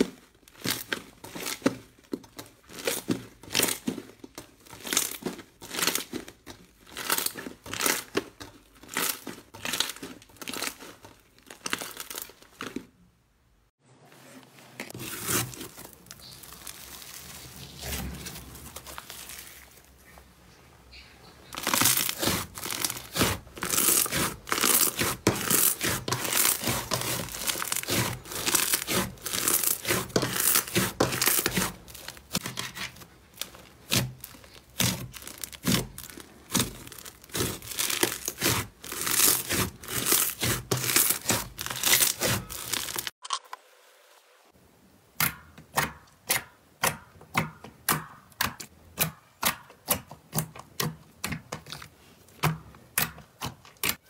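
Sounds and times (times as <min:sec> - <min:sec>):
slime crinkling and tearing: 0:00.0 - 0:13.0, 0:14.9 - 0:20.0, 0:21.5 - 0:43.2.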